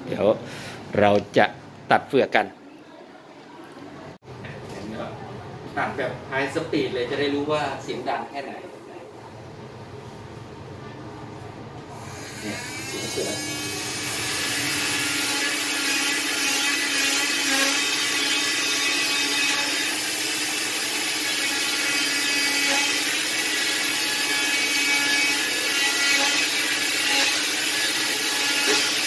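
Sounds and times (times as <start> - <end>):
electric cast saw whining: 11.9 - 29.0.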